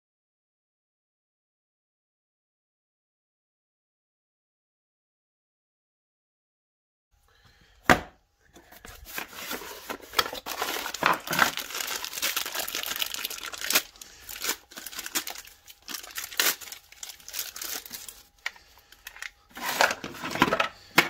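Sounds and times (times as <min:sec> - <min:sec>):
plastic bag crinkling: 0:09.0 - 0:20.6.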